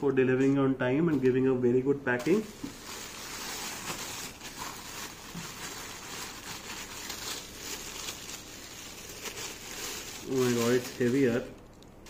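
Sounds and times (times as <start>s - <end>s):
plastic bag crinkling: 2.2s - 12.0s.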